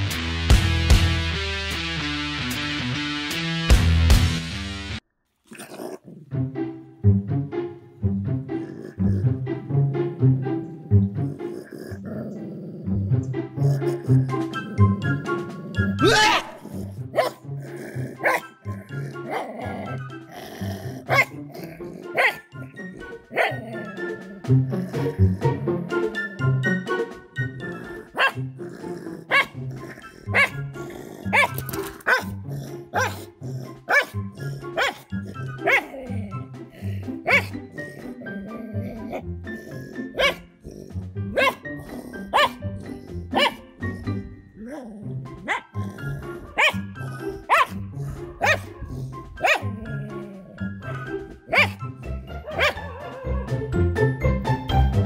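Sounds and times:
dog barking: 0:16.1 - 0:17.4, 0:18.2 - 0:20.0, 0:21.1 - 0:21.4, 0:22.0 - 0:23.9, 0:28.0 - 0:28.4, 0:29.2 - 0:30.6, 0:31.2 - 0:33.3, 0:33.9 - 0:36.2, 0:37.2 - 0:38.0, 0:40.1 - 0:40.5, 0:41.3 - 0:42.6, 0:43.3 - 0:43.7, 0:45.4 - 0:50.0, 0:50.8 - 0:53.6
background music with steady beat: 0:46.1 - 0:55.0.

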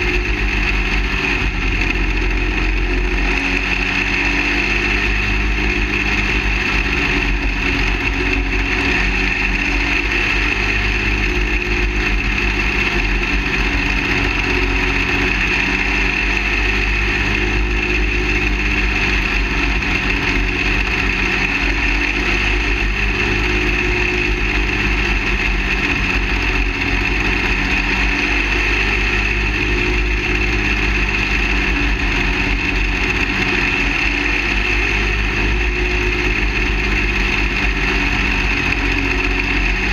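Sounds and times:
race car engine droning: 0:00.0 - 0:39.9.

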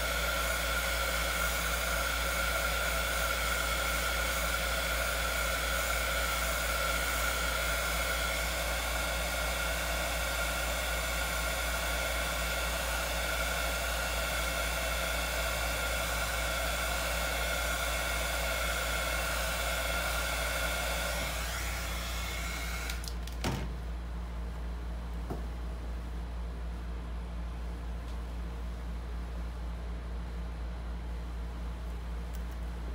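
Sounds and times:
electric blower motor whining: 0:00.0 - 0:23.4.

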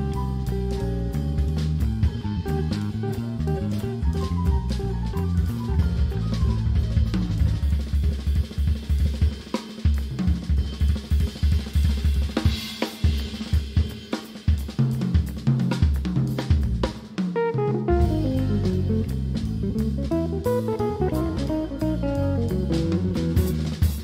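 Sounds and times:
electric guitar: 0:00.0 - 0:08.4, 0:17.4 - 0:24.0
bass line: 0:00.0 - 0:09.1, 0:16.4 - 0:24.0
drum kit fills: 0:00.0 - 0:24.0.

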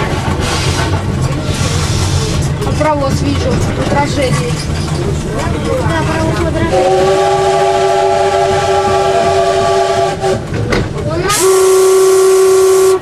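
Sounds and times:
train running noise: 0:00.0 - 0:13.0
train whistle blast: 0:06.8 - 0:10.4, 0:11.3 - 0:13.0.

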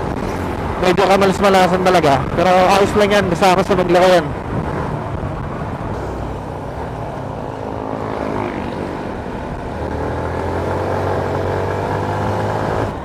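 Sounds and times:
motorcycle engine running: 0:04.7 - 0:13.0.

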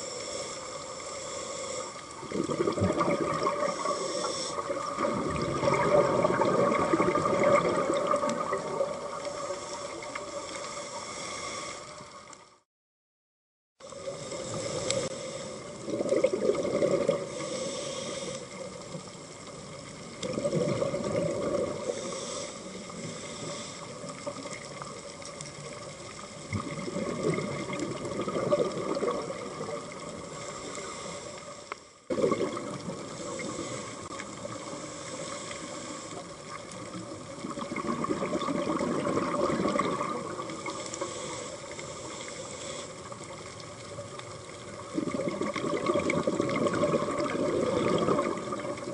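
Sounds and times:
exhaled bubbles underwater: 0:02.0 - 0:10.7, 0:13.8 - 0:31.0, 0:32.1 - 0:42.4, 0:43.0 - 0:48.9.

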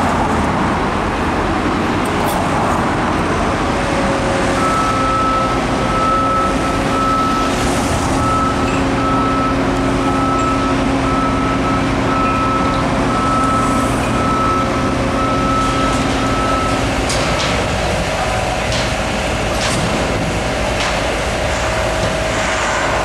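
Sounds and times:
engine running: 0:00.0 - 0:23.0.

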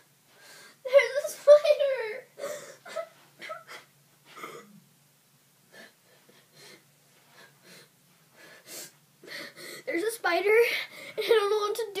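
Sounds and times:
girl gasping: 0:02.4 - 0:04.6, 0:05.7 - 0:10.0, 0:10.6 - 0:11.4.

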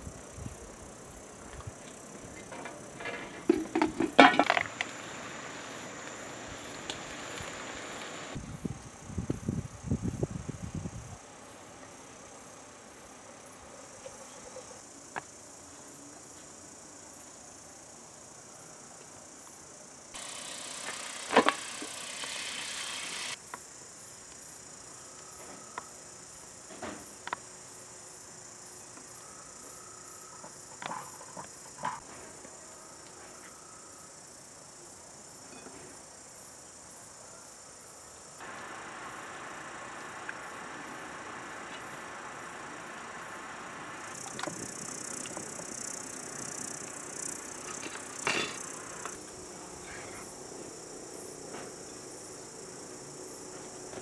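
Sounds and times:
insects chirring: 0:00.0 - 0:54.0
loud hiss: 0:04.6 - 0:08.6, 0:20.2 - 0:23.4, 0:38.4 - 0:50.3
hot oil sizzling in a frying pan: 0:20.2 - 0:23.4.

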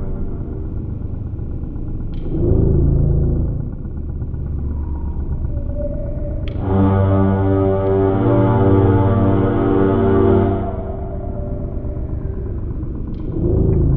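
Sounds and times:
low rumbling ambient music: 0:00.0 - 0:13.9
organ-like chords: 0:06.4 - 0:13.9.

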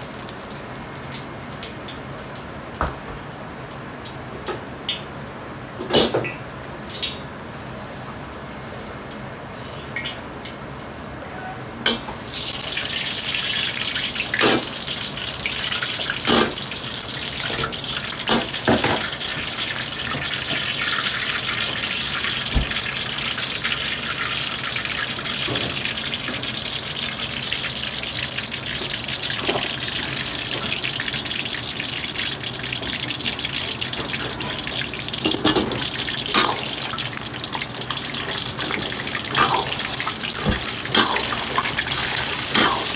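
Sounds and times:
oil sizzling in a wok: 0:00.0 - 0:03.0, 0:11.9 - 0:42.9.

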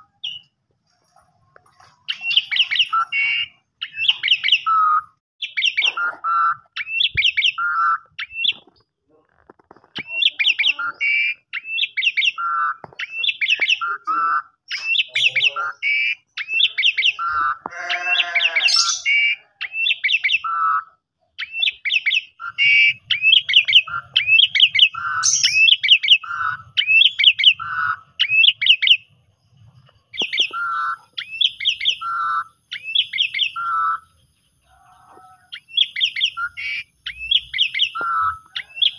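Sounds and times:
starling singing high chirps: 0:00.0 - 0:08.9, 0:09.7 - 0:38.9
harsh buzzy bird call: 0:10.1 - 0:29.0.

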